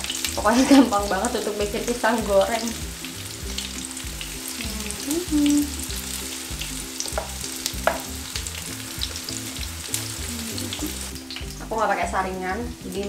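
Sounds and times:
battered fruit sizzling in hot oil: 0.0s - 13.0s.

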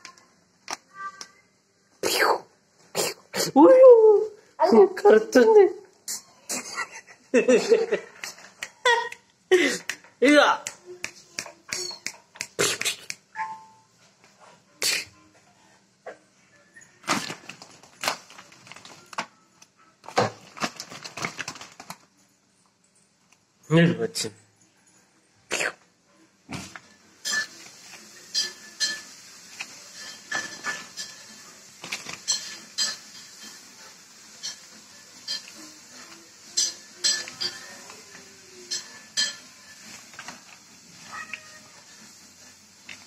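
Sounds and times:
plastic packet crinkling: 17.0s - 19.4s, 20.0s - 22.1s, 29.5s - 32.8s, 39.7s - 42.1s.

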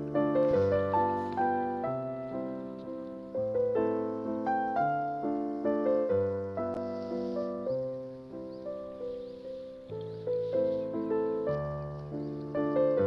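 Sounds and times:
slow gentle piano music: 0.0s - 13.0s.

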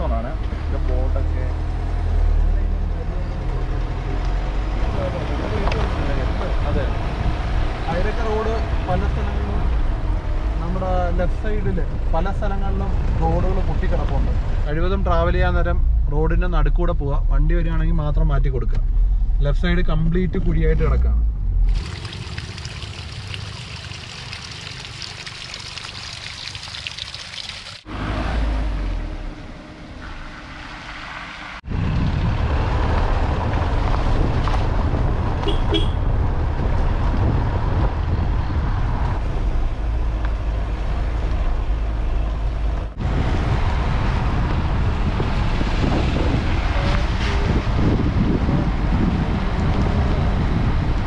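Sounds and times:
vehicle road and wind noise: 0.0s - 51.0s
horn toot: 35.4s - 36.1s.

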